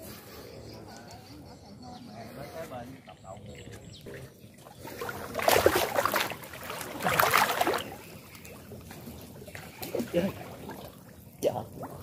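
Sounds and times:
water splashing and sloshing: 0:02.5 - 0:12.0.

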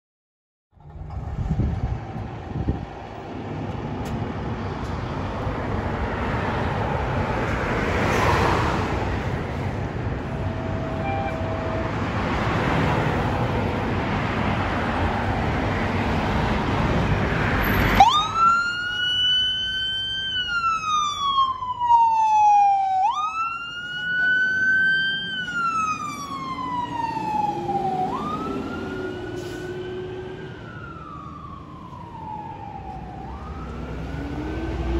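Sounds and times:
street traffic noise: 0:00.7 - 0:34.9
fire engine siren wailing: 0:10.0 - 0:15.3, 0:17.4 - 0:34.9.

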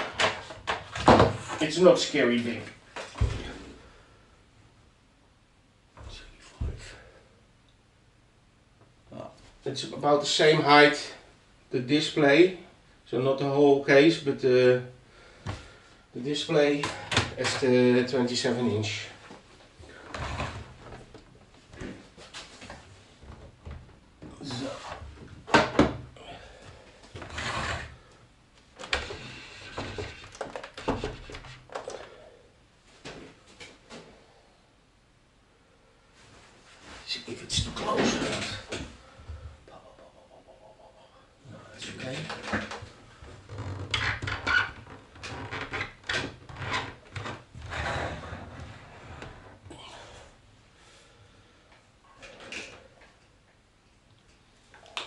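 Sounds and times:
objects scraping on desk: 0:27.2 - 0:28.0, 0:29.0 - 0:31.6.

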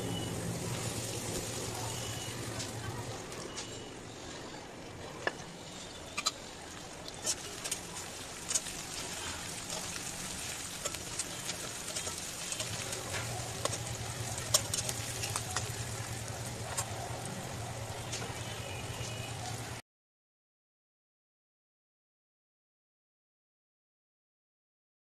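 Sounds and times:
onions sizzling in oil: 0:00.0 - 0:04.1, 0:05.6 - 0:19.8
metal spatula scraping pan: 0:08.5 - 0:15.8.

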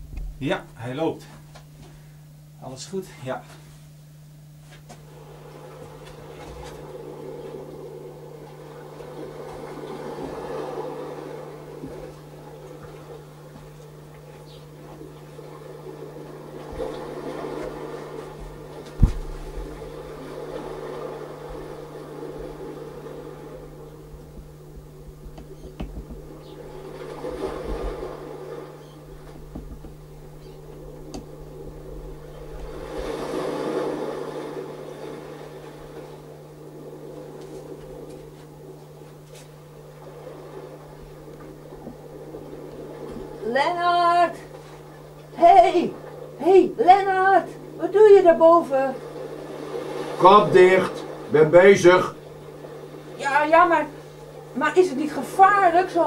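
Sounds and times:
dull thump: 0:00.0 - 0:00.4, 0:18.4 - 0:19.9, 0:24.1 - 0:26.4, 0:29.1 - 0:32.8
steady low hum: 0:00.0 - 0:56.0.

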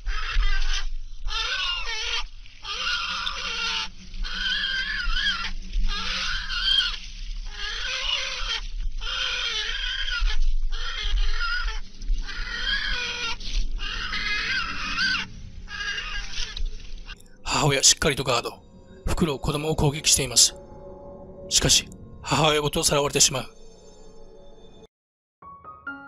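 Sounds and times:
falcon alarm calls: 0:01.3 - 0:07.0, 0:07.6 - 0:16.6.

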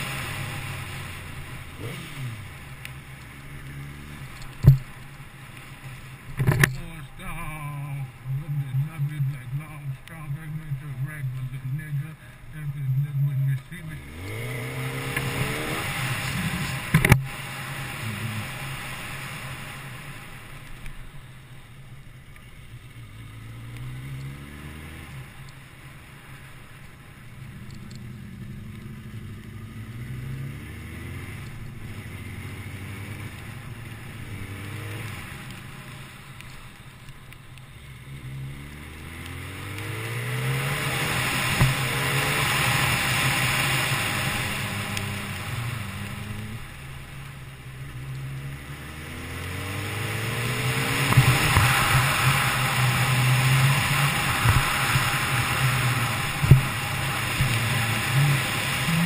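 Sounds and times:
motorcycle engine revving: 0:00.0 - 0:20.4, 0:22.9 - 0:36.6, 0:37.8 - 0:59.0
wind rushing over microphone: 0:48.9 - 0:59.0.

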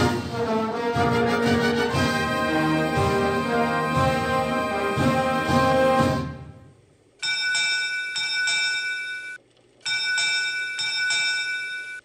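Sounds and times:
theme music: 0:00.0 - 0:06.8
ship's bell ringing: 0:07.2 - 0:12.0.

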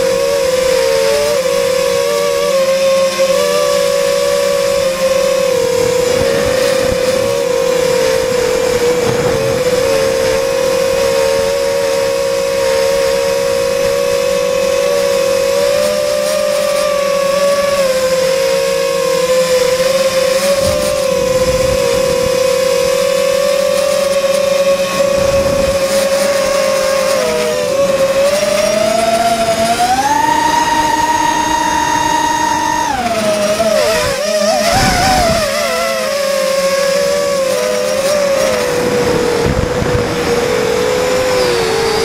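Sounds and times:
quadcopter motors whining: 0:00.0 - 0:42.0
rush of air noise: 0:05.4 - 0:12.4, 0:20.5 - 0:23.0, 0:38.7 - 0:42.0.

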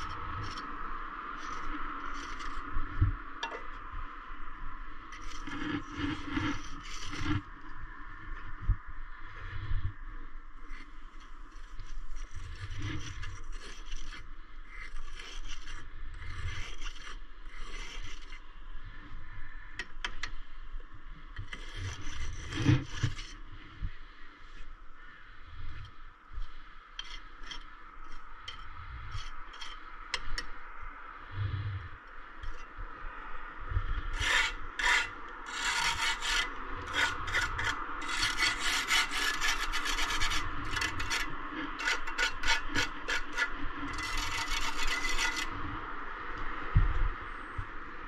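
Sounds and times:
hand tool scraping brick: 0:01.4 - 0:02.6, 0:05.1 - 0:07.5, 0:11.5 - 0:18.4, 0:21.4 - 0:23.4, 0:27.0 - 0:30.4, 0:34.1 - 0:45.5.

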